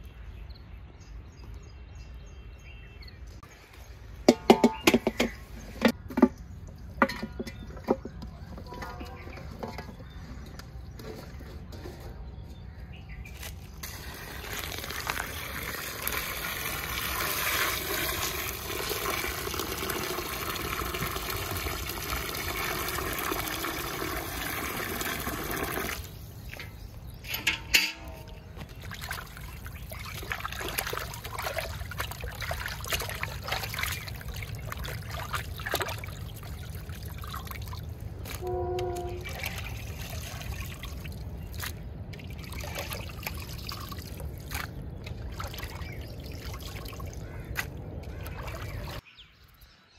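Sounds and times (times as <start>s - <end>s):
water sloshing: 7.0s - 11.8s, 13.4s - 49.0s
water pouring into pot: 13.8s - 26.2s.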